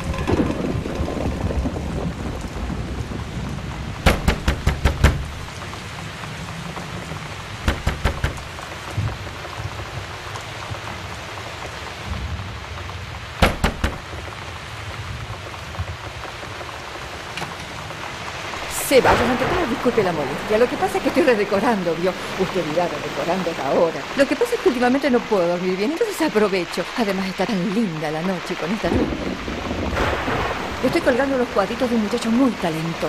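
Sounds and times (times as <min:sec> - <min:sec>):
knocking on wooden door: 0:04.0 - 0:05.3, 0:07.7 - 0:08.5, 0:13.4 - 0:14.0.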